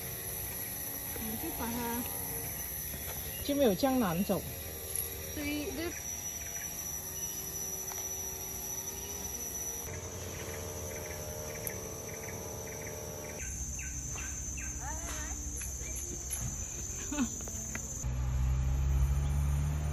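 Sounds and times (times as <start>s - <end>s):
insects buzzing high-pitched: 0.0s - 19.9s
whistled bird calls: 5.8s - 8.0s.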